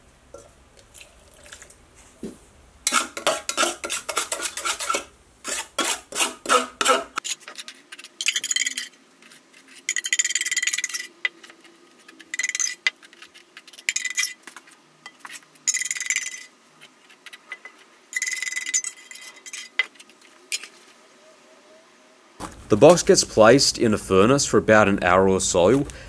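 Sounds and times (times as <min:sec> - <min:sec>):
palette knife scraping cement: 0:02.9 - 0:08.1.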